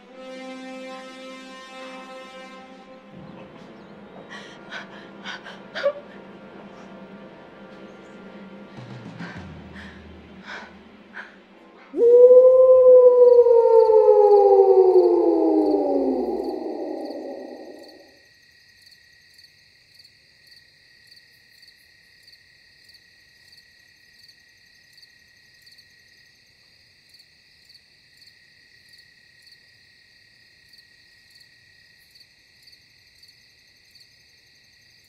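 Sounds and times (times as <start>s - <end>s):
crickets chirping: 1.7s - 35.0s
falling howl-like glide: 11.9s - 18.0s.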